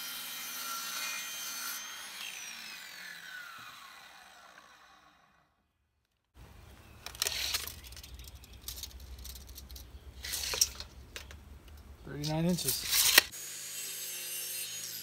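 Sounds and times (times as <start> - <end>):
wooden object handling: 6.6 - 13.3
scraping rattle: 7.0 - 13.3.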